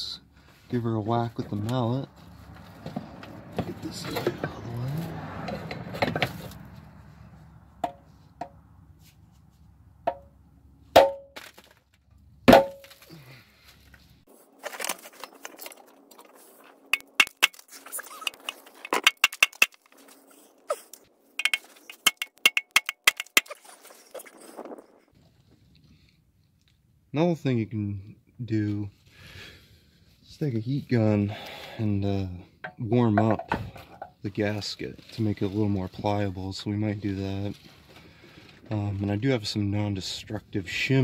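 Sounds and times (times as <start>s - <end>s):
mallet striking steel pan: 11.0s - 11.3s
light metallic taps and clinks: 21.4s - 23.6s.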